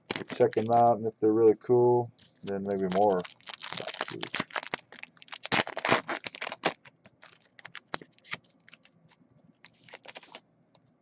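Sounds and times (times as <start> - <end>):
foil wrappers crinkling and tearing: 0.0 - 0.9, 2.2 - 9.0, 9.6 - 10.4.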